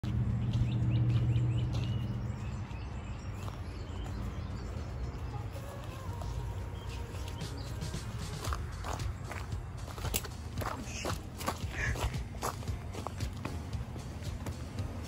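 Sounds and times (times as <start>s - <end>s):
outdoor background noise: 0.0s - 15.0s
bird chirping: 0.3s - 10.1s.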